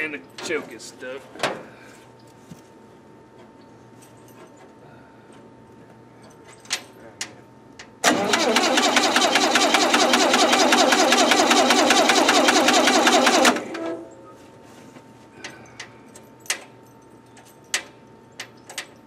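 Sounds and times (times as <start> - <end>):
engine cranking on starter: 8.0 - 14.0.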